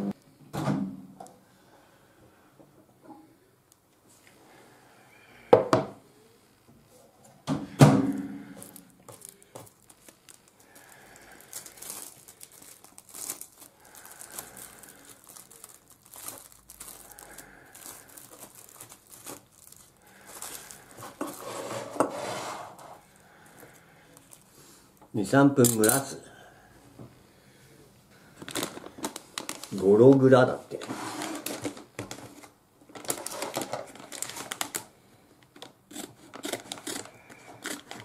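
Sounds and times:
plastic cling film crinkling: 0:08.1 - 0:26.1, 0:28.2 - 0:38.0.

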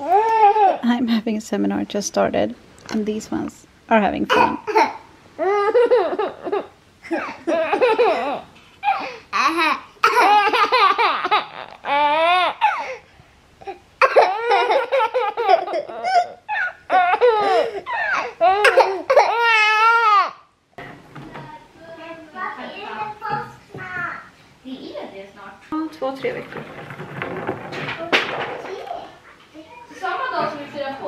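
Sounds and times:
baby laughing: 0:04.3 - 0:13.0, 0:13.6 - 0:20.3.

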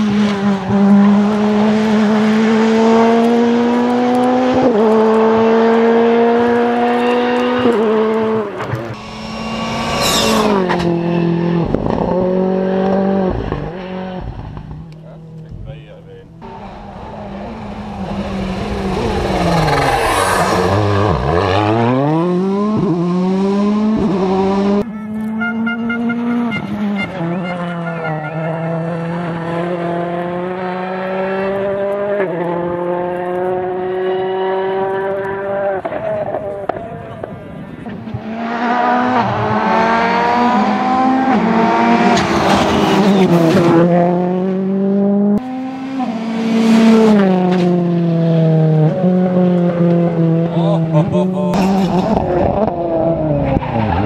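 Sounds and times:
rally car engine at high revs: 0:00.0 - 0:15.6, 0:16.2 - 0:54.0
rally car engine revving: 0:00.0 - 0:54.0.

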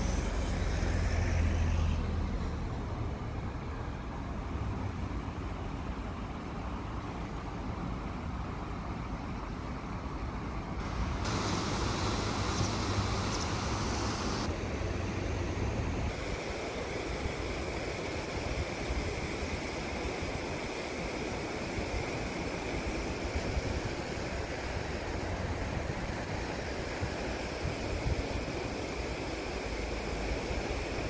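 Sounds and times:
river rushing over weir: 0:10.0 - 0:31.0.

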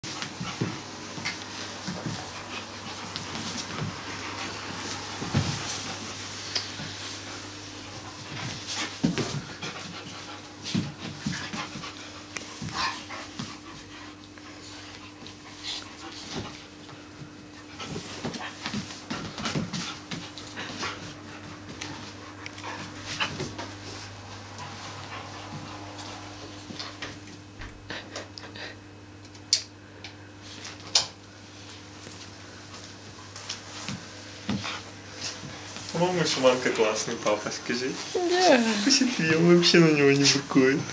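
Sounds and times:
dogs shifting on blanket: 0:00.1 - 0:09.8
scuffles and rustles: 0:00.1 - 0:27.2
dogs panting: 0:00.1 - 0:28.8.

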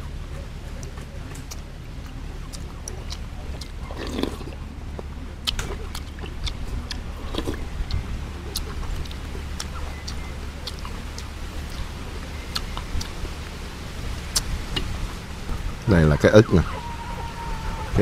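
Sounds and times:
steady low hum: 0:00.0 - 0:18.0
slurping and chewing: 0:00.8 - 0:13.6.

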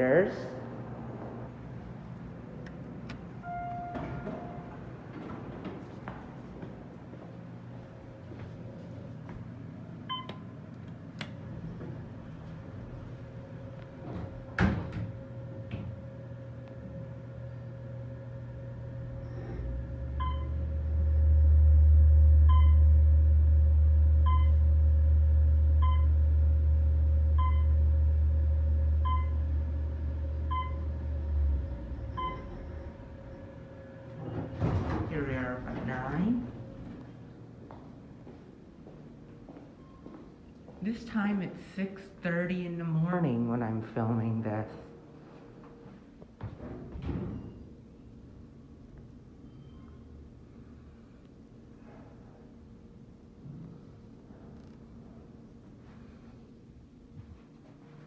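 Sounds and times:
elevator motor humming: 0:00.0 - 0:58.0
short beeps: 0:03.4 - 0:04.8.

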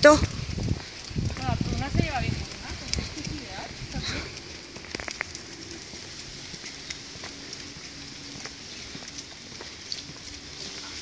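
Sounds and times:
footsteps on pavement: 0:00.0 - 0:11.0
street ambience hiss: 0:00.0 - 0:11.0.

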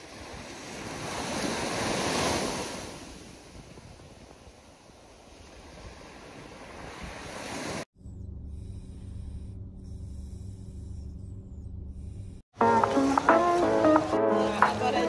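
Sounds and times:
waves washing on a sandy shore: 0:00.0 - 0:07.9.

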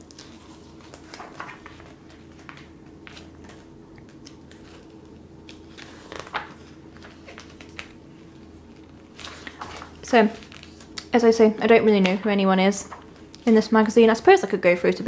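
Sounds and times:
magazine pages turning: 0:00.0 - 0:11.1
low steady hum: 0:00.0 - 0:15.0.

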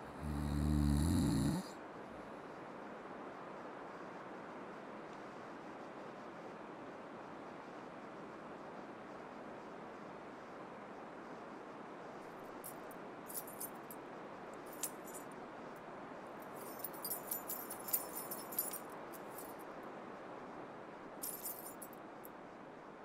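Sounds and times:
light metallic jingling: 0:12.6 - 0:14.0, 0:14.6 - 0:15.3, 0:16.4 - 0:19.6, 0:21.2 - 0:22.0.

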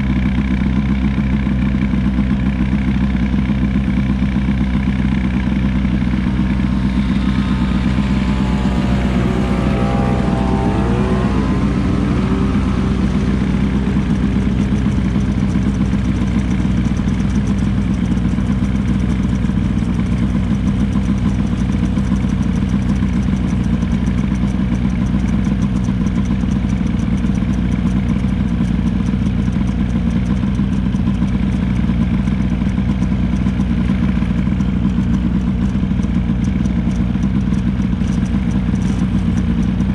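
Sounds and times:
snowmobile engine running: 0:00.0 - 0:39.9
wavering high tone: 0:05.6 - 0:16.4.

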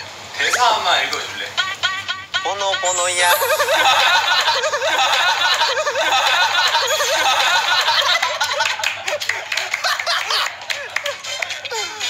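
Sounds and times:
men laughing: 0:03.0 - 0:12.0.

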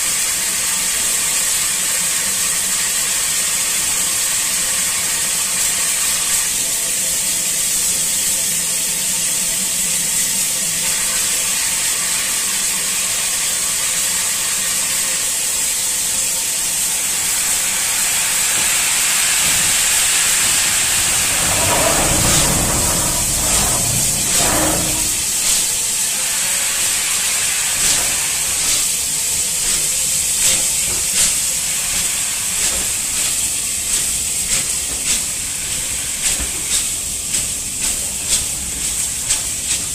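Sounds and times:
steam hissing: 0:00.0 - 0:39.9
steam locomotive exhaust beats: 0:15.4 - 0:39.9.

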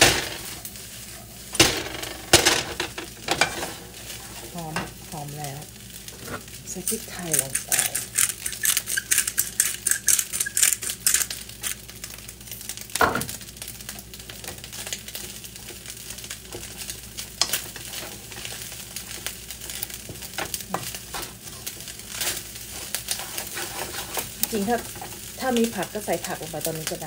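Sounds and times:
rice sizzling in a wok: 0:00.0 - 0:27.0
wooden spoon scraping a wok: 0:03.2 - 0:05.0, 0:06.1 - 0:11.1, 0:14.7 - 0:26.0
pepper shaker shaken: 0:06.8 - 0:11.8.

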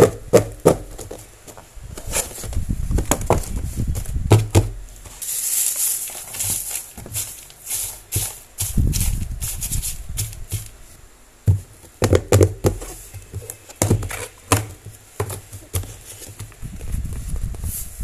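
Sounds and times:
shredded paper rustling: 0:05.1 - 0:10.8
packet crinkling: 0:05.2 - 0:10.0.

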